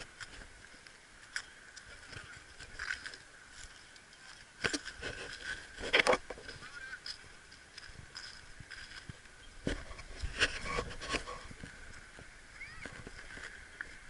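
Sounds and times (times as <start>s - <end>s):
geese honking: 6.4s - 7.1s.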